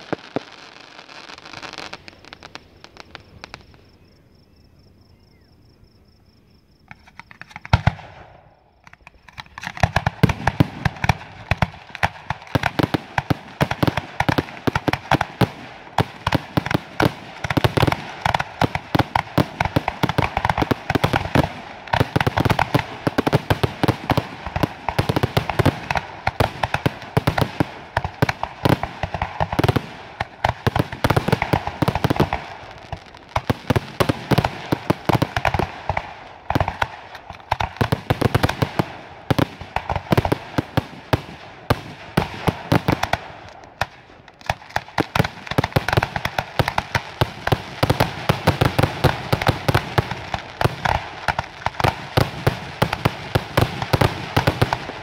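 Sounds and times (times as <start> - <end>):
firework shells bursting: 0.0 - 4.0, 6.9 - 55.0.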